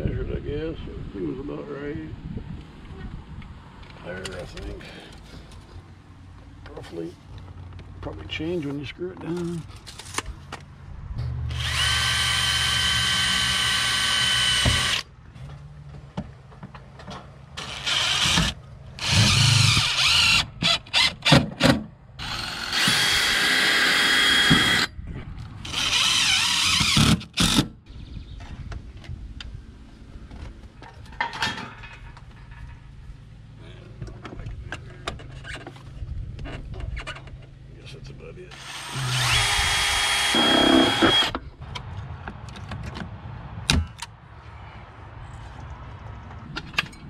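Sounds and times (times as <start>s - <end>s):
cordless drill motor whine: 11.5s - 15.0s, 17.6s - 21.1s, 22.2s - 24.9s, 38.5s - 41.4s
drill trigger blips: 38.5s - 41.4s.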